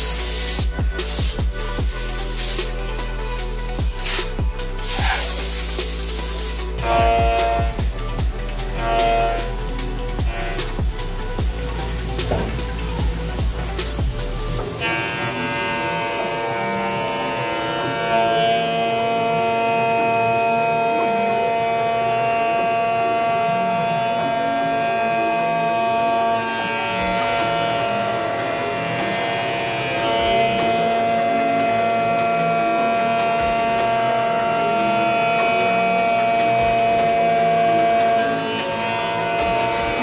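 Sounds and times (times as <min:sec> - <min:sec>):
coolant spray hiss: 0:00.0 - 0:15.2
milling machine whine: 0:00.0 - 0:40.0.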